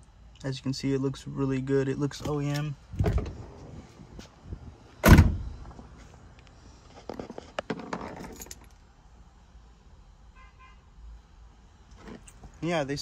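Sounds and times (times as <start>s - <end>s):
loud thump: 5.0s - 5.7s.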